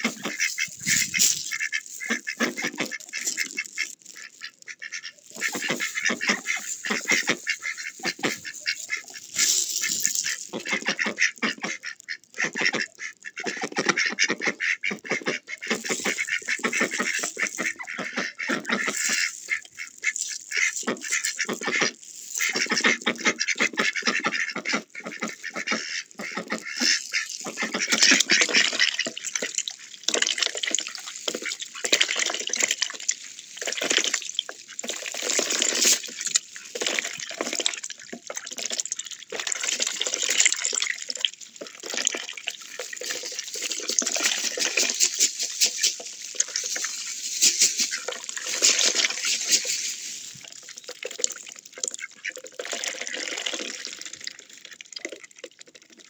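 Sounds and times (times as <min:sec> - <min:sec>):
duck quacks: 0:00.0 - 0:29.5
ducks splashing in water: 0:00.0 - 0:56.0.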